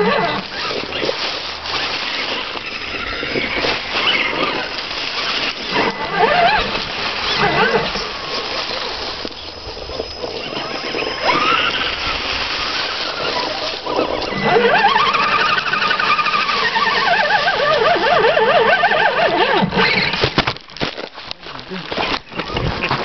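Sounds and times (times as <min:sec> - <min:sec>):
electric motors whining: 0:00.0 - 0:20.4.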